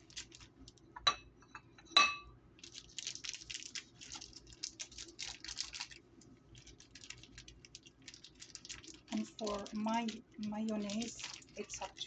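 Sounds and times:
rustling handling noise: 0.0 - 0.9, 2.6 - 12.0
dishes clinking: 1.0 - 2.3.

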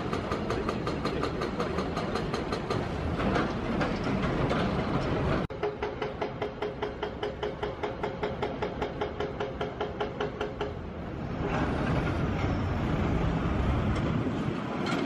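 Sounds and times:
traffic rumble: 10.6 - 15.0.

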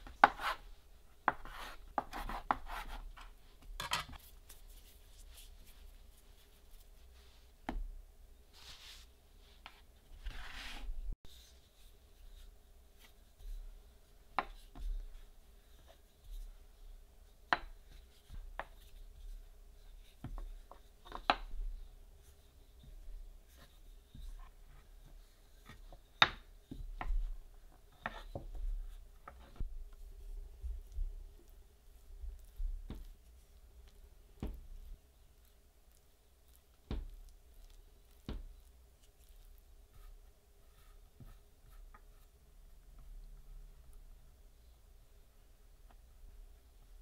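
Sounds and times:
dough rubbing swishes: 8.5 - 16.8.

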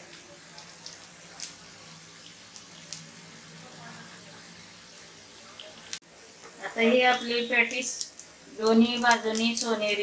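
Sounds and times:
patties sizzling in a pan: 0.0 - 10.0.

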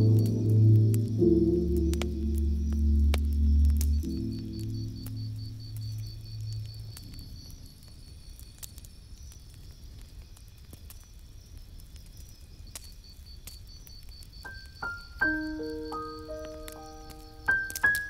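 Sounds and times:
calm instrumental music: 0.0 - 5.5, 14.5 - 18.0.

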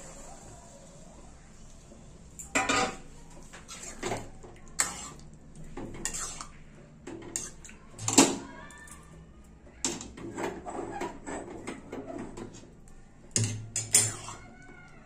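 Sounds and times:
metal ladle scraping a metal pan: 4.8 - 5.2, 6.0 - 6.6, 7.3 - 8.1, 13.4 - 14.4.

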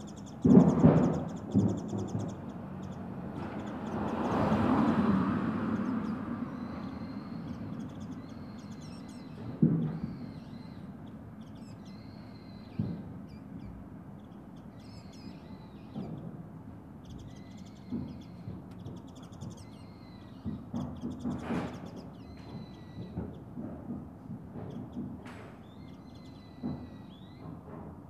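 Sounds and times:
birds calling: 0.0 - 27.7.

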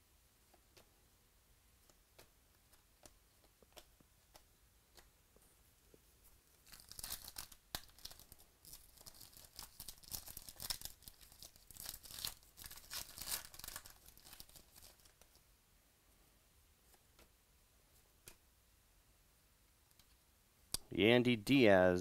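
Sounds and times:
wrapper tearing and crinkling: 6.6 - 15.2.

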